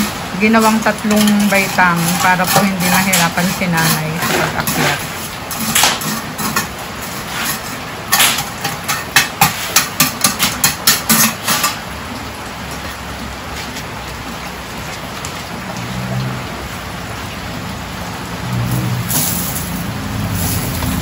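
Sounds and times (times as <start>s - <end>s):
rain hiss: 0.0s - 21.0s
hand tools scraping wet concrete: 0.5s - 11.8s.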